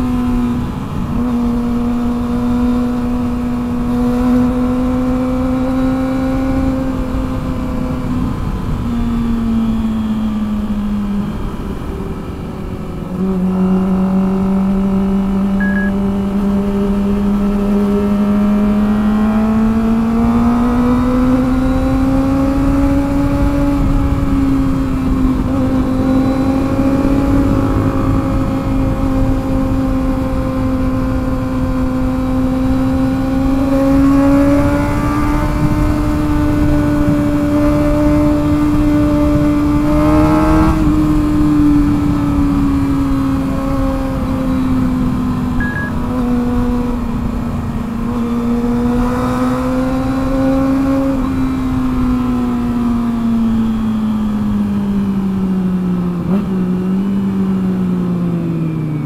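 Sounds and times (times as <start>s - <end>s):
motorcycle engine high revs: 13.0s - 55.5s.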